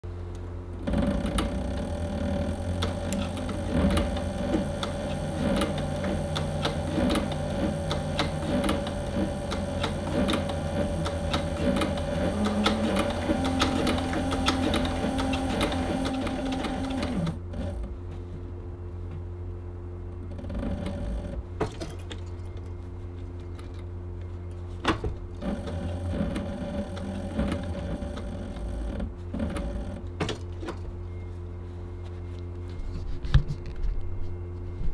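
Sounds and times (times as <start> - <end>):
motor low hum: 0.0 - 34.9
sewing machine stitching leather: 0.8 - 17.9, 20.2 - 21.4, 25.4 - 30.1.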